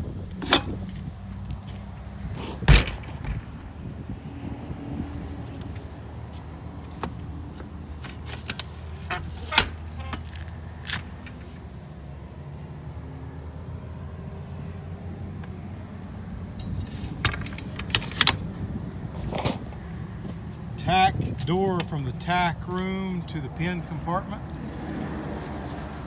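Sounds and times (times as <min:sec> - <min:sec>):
metal door latches clanking: 0:08.2 - 0:10.2.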